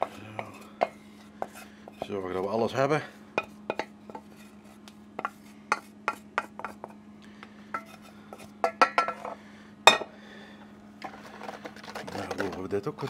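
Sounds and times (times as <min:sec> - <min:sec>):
wooden spoon scraping saucepan: 0:00.0 - 0:02.2, 0:11.0 - 0:12.7.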